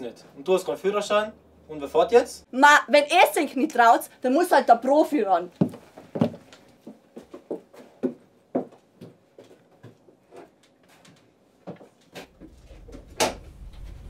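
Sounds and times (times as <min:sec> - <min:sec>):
footsteps on bus floor: 0:05.6 - 0:13.1
low rumble: 0:12.3 - 0:14.0.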